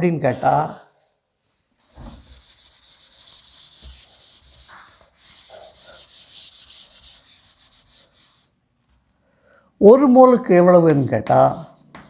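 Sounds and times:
eraser wiping chalkboard: 0:01.8 - 0:09.0.

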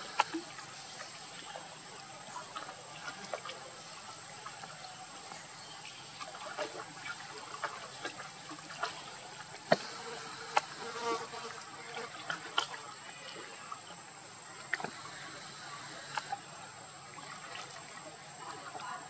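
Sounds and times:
water splashing and dripping: 0:00.0 - 0:13.9, 0:17.0 - 0:19.0
faint steady hiss: 0:00.0 - 0:19.0.

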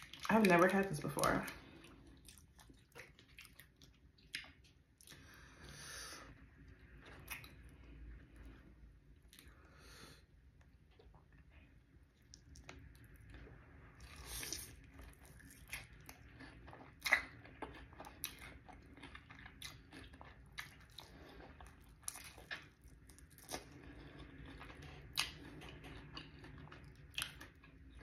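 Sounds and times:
wet chewing: 0:00.0 - 0:05.6, 0:06.9 - 0:07.8, 0:10.6 - 0:28.0
crunching fried chicken: 0:12.2 - 0:28.0.

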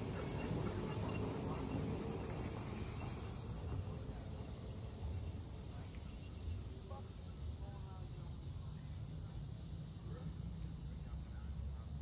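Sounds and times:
cicadas droning: 0:00.0 - 0:12.0.

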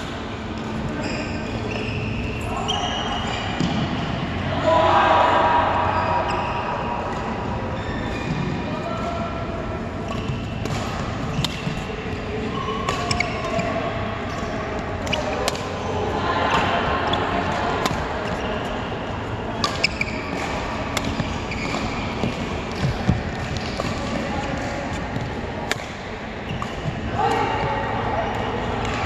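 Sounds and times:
shoes squeaking on court: 0:00.3 - 0:04.0, 0:10.0 - 0:15.9, 0:17.0 - 0:25.4
racket hitting shuttlecock: 0:10.1 - 0:11.9, 0:15.0 - 0:15.8, 0:17.5 - 0:18.4, 0:19.6 - 0:27.5.

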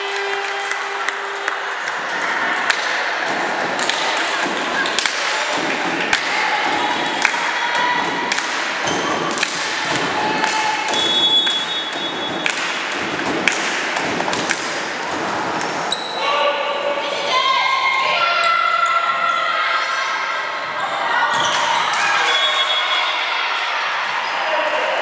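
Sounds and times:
murmur of voices: 0:00.0 - 0:25.0.

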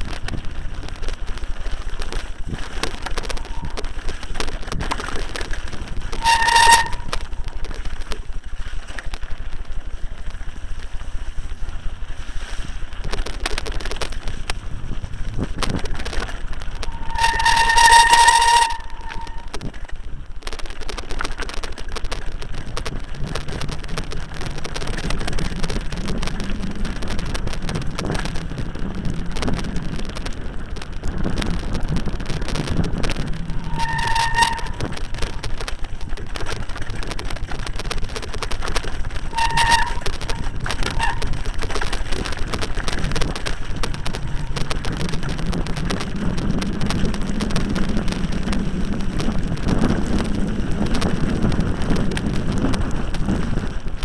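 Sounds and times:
mountain bike clattering and rattling: 0:00.0 - 0:54.0
short high squeals: 0:06.1 - 0:07.6, 0:16.8 - 0:19.6, 0:33.4 - 0:35.4, 0:39.3 - 0:41.3
wind buffeting microphone: 0:10.9 - 0:54.0.

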